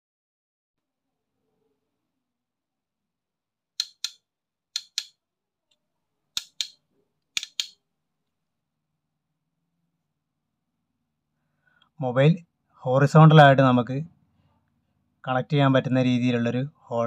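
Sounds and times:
sharp crisp clicks: 3.8s - 5.2s, 6.4s - 7.8s.

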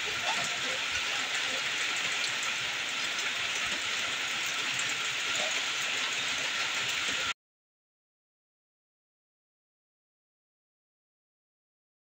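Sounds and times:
rain falling on puddles and leaves: 0.0s - 7.4s.

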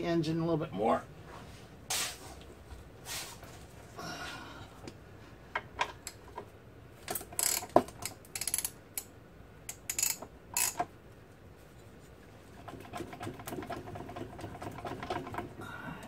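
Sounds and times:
ratchet clicking: 7.1s - 10.9s.

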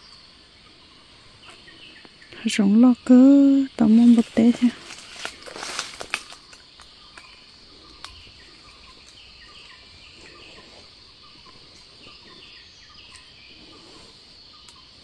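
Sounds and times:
high insect drone: 0.0s - 15.0s
footsteps through dry leaves: 4.0s - 6.5s.

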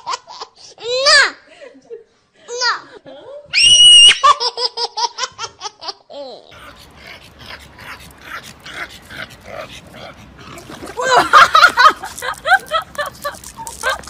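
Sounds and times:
person laughing: 10.7s - 14.0s.

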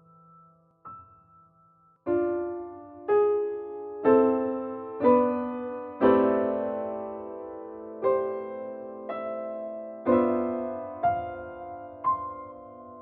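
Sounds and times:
slow solo piano chords: 0.0s - 13.0s.

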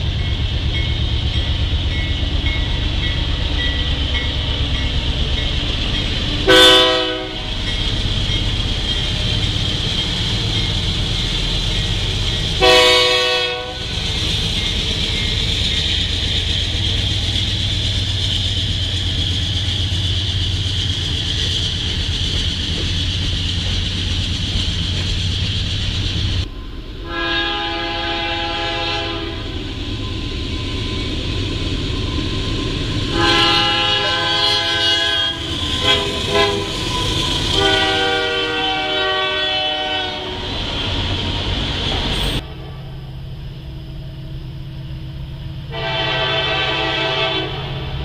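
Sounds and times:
diesel locomotive engine rumble: 0.0s - 48.0s
wheels hissing on rail: 0.0s - 48.0s
train air horn blasts: 6.4s - 7.6s, 12.6s - 14.0s, 27.0s - 29.5s, 33.1s - 40.4s, 45.7s - 48.0s.

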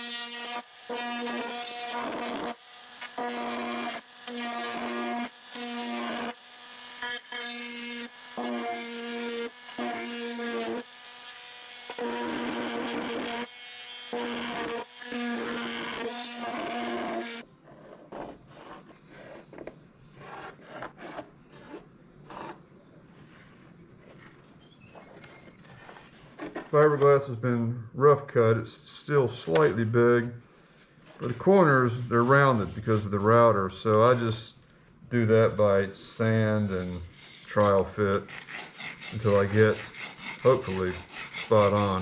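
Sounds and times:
rotary tool whining: 0.0s - 22.6s, 36.5s - 42.0s.

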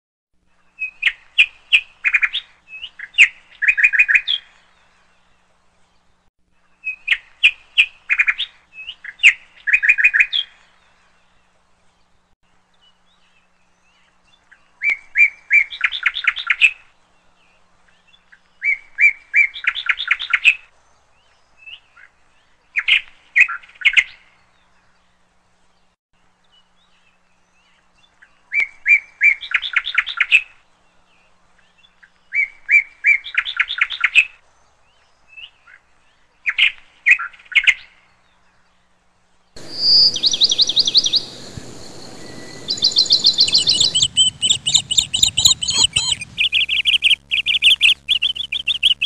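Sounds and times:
songbird chirping and trilling: 39.6s - 49.0s.

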